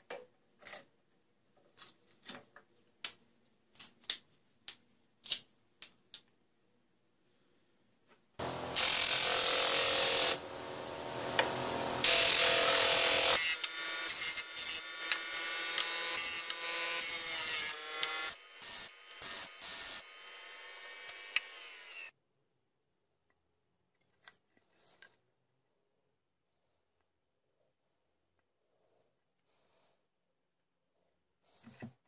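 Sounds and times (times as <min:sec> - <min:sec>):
wood grinding on sander disc: 0:08.4 - 0:18.4
electric disc sander running: 0:08.4 - 0:22.1.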